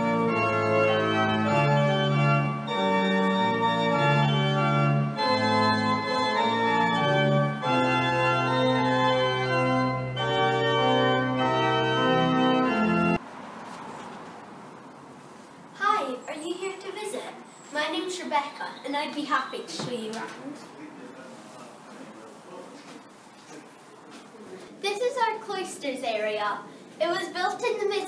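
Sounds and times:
organ playing slow chords: 0:00.0 - 0:13.2.

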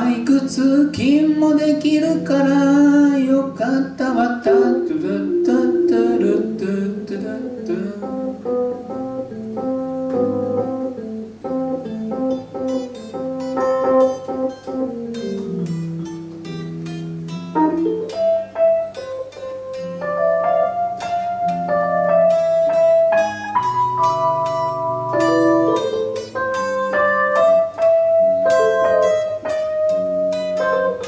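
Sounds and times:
electric guitar: 0:00.0 - 0:31.0
electronic keyboard: 0:00.0 - 0:31.0.

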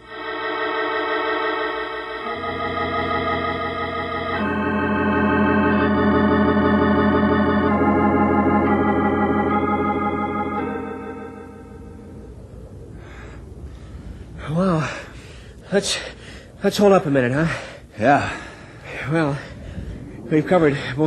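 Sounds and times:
sustained organ chords: 0:00.0 - 0:12.5.

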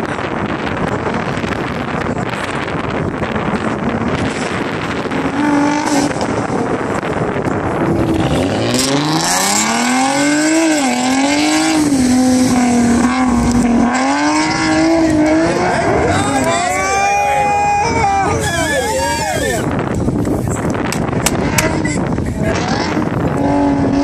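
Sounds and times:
wind rumbling on microphone: 0:00.0 - 0:24.0
car engine revving hard: 0:03.5 - 0:17.7, 0:21.2 - 0:24.0.

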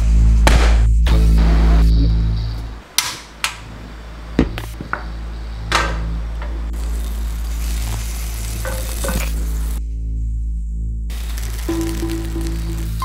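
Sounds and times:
gas burner hissing: 0:02.6 - 0:09.8, 0:11.1 - 0:13.0
gas stove igniter clicks: 0:03.0 - 0:03.7.

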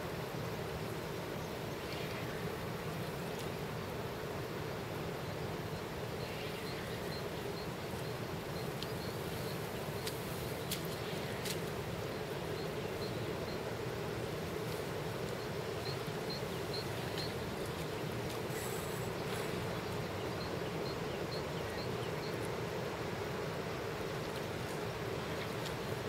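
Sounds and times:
constant hiss: 0:00.0 - 0:26.0
faint sharp clicks: 0:08.8 - 0:09.0, 0:10.0 - 0:11.7.

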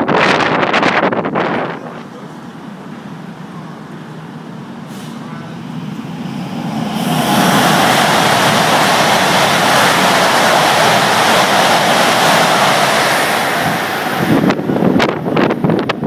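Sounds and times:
wind buffeting microphone: 0:00.0 - 0:02.2, 0:05.7 - 0:16.0
high-speed train rushing past: 0:00.0 - 0:16.0.

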